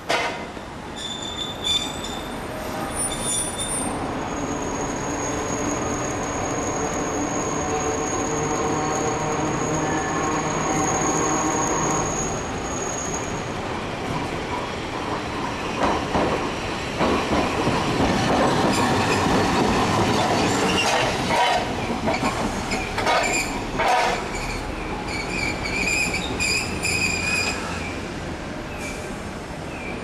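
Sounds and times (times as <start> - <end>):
high-pitched wheel squeal: 1.0 - 13.5, 23.1 - 28.0
tram wheels clacking over rail joints: 14.0 - 27.8.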